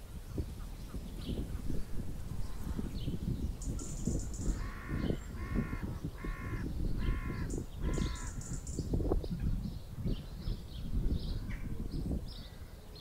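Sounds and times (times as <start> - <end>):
crow cawing: 4.5 - 8.6.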